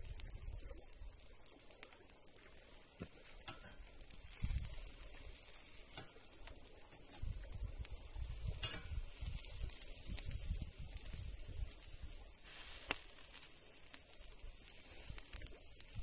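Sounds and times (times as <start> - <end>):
burger patties sizzling on a grill: 0.0 - 16.0
fire crackling: 0.0 - 16.0
scrape on grill grate: 3.5 - 6.4, 8.3 - 9.7, 12.4 - 13.4.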